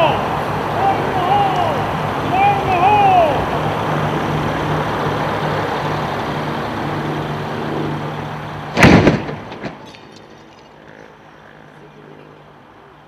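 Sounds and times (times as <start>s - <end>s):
low engine-like hum: 0.0s - 13.0s
gas explosion blast: 8.7s - 9.8s.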